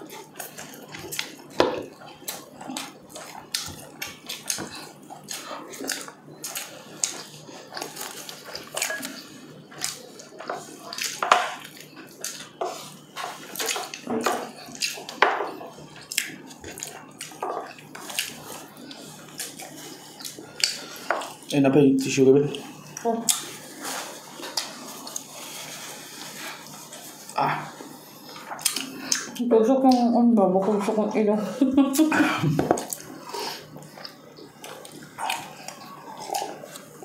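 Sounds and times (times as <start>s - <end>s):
wet chewing and lip smacking: 0.1s - 12.8s, 15.9s - 21.5s, 28.2s - 30.0s, 32.8s - 37.0s.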